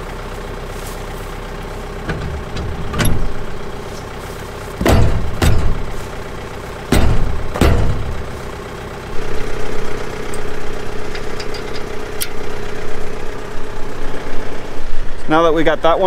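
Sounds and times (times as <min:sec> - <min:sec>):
tractor engine rumble: 0:00.0 - 0:16.0
steady hum: 0:01.7 - 0:15.3
heavy metal knocks: 0:01.8 - 0:14.0
light metallic clicks: 0:10.2 - 0:12.5.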